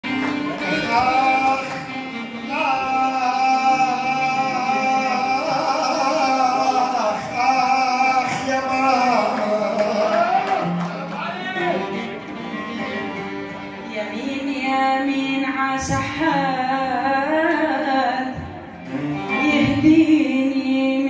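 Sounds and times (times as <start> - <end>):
person singing long notes: 0.0 - 11.0.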